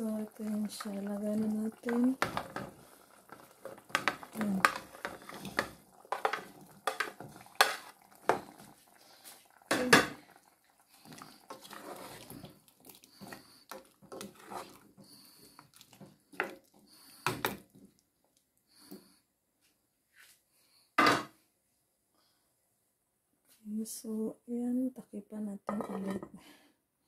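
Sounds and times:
metal spoon scraping saucepan: 14.1 - 14.8.

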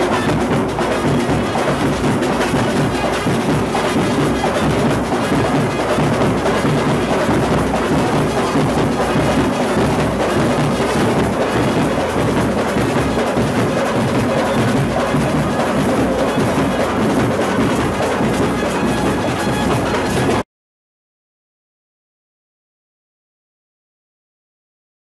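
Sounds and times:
drums: 0.0 - 20.4
street band playing dance music: 0.0 - 20.4
trumpet: 0.0 - 20.4
clarinet: 17.6 - 20.4.

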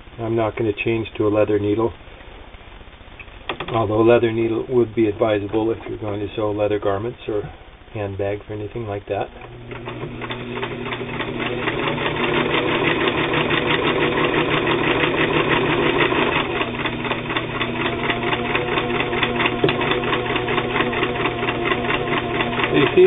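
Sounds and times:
sewing machine clattering: 9.7 - 23.0.

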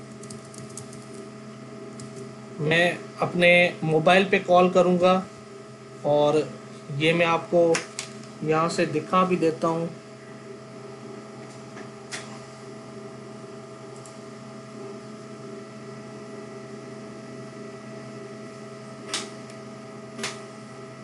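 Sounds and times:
electrical hum: 0.0 - 21.0
sharp click: 19.1 - 19.4, 20.2 - 20.4.

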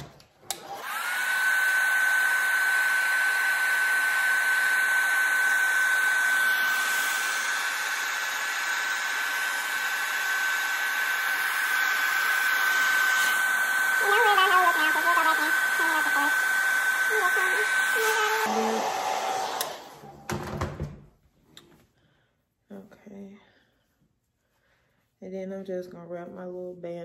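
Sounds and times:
hair dryer motor whine: 0.0 - 20.9.

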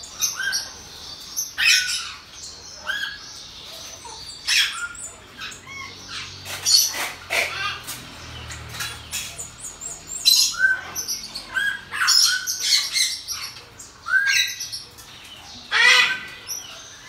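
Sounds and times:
monkeys chirping and squeaking: 0.0 - 17.0
loud monkey call: 1.5 - 3.2, 4.0 - 8.0, 10.2 - 13.5, 15.7 - 17.0.

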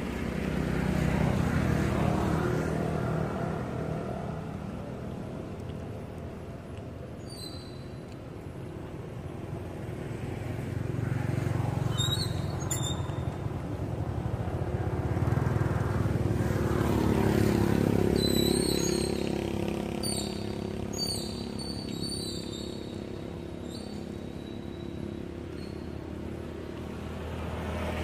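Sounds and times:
vehicle engine passing: 9.6 - 28.0.

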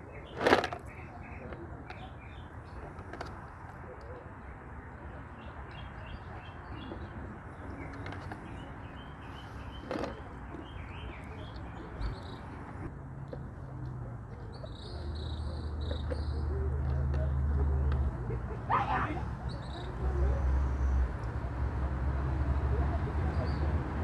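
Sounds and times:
small birds chirping: 0.0 - 13.7, 14.3 - 18.2.

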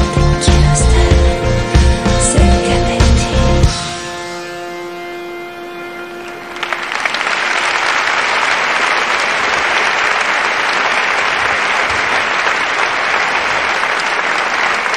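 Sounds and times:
live music held note: 0.0 - 11.9
audience applauding: 6.2 - 14.9.

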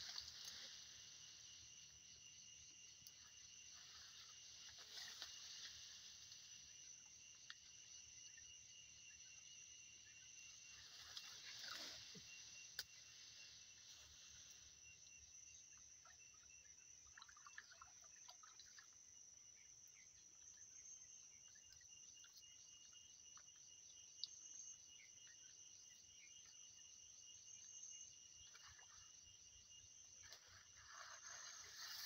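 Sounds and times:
high-pitched insect chorus: 0.0 - 32.0.

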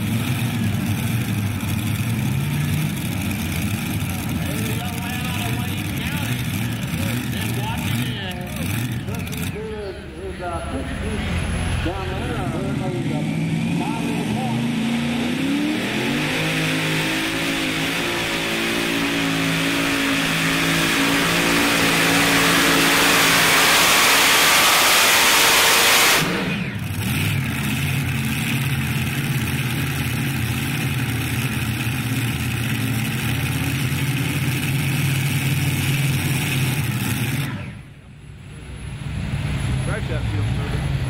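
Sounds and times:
pulling tractor engines at full throttle: 0.0 - 41.0.

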